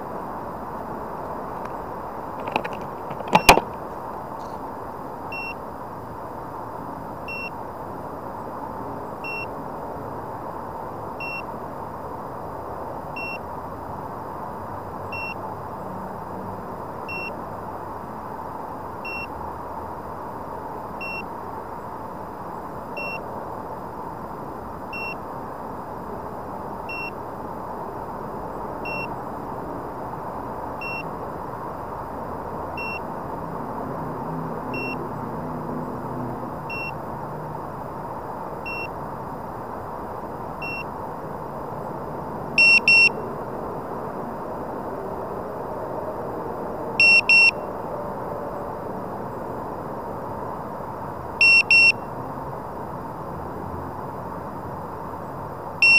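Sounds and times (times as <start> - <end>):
steady background hiss: 0.0 - 55.9
short electronic beeps: 3.2 - 3.7, 36.7 - 37.0, 38.7 - 38.9, 40.6 - 40.9, 42.6 - 43.2, 47.0 - 47.6, 51.4 - 52.1.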